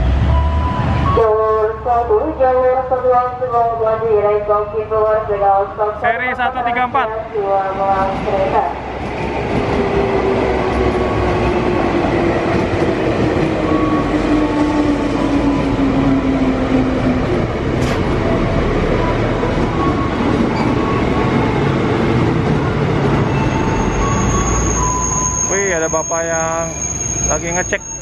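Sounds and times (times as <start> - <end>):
train wheels rumbling on rail: 7.3 - 28.0.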